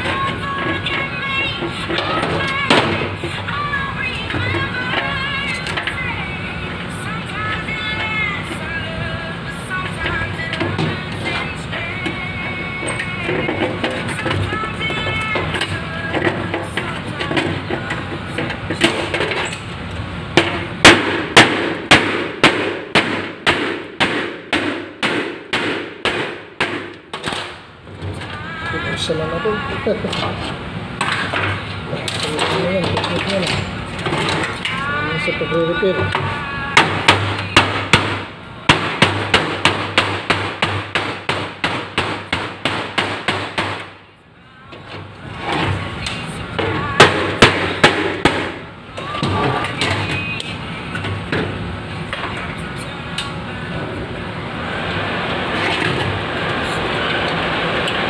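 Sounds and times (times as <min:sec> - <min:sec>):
hammer striking sheet metal: 0:20.4 - 0:27.5, 0:36.8 - 0:43.9, 0:47.0 - 0:48.6.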